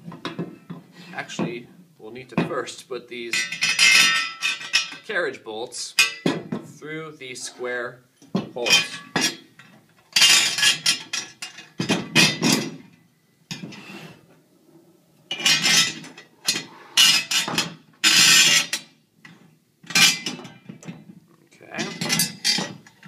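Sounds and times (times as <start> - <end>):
metal plates and bolts clattering: 3.3 - 5.1, 5.9 - 6.7, 8.3 - 13.9, 15.3 - 23.0.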